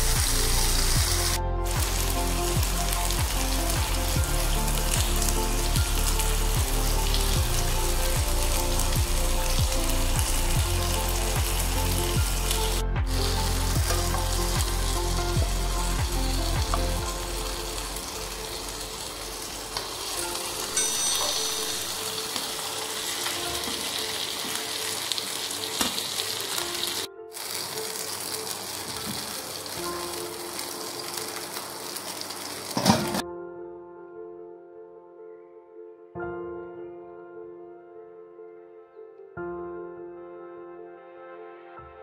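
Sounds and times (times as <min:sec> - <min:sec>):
fish sizzling in a pan: 0:00.0 - 0:33.2.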